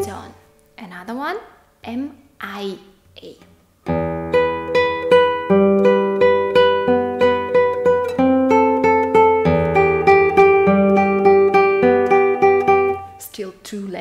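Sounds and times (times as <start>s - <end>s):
classical guitar tremolo: 3.8s - 13.4s.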